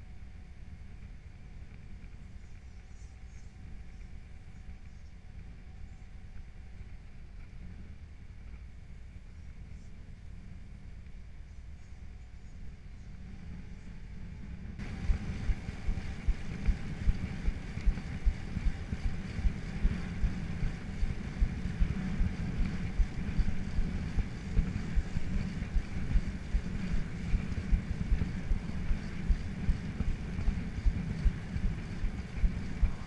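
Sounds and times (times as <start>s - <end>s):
wind buffeting microphone: 13.5s - 33.0s.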